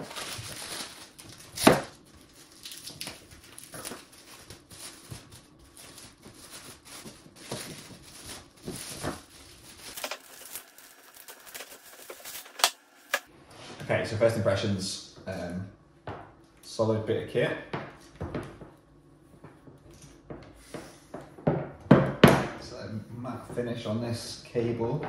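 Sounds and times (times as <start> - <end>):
plastic wrapping crinkling: 0.0 - 13.3.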